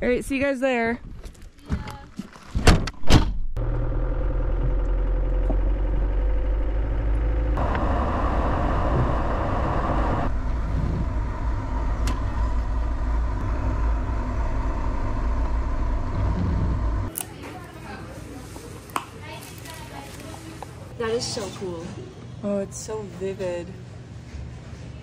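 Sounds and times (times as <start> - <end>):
vehicle engine and road rumble: 1.0 - 17.1.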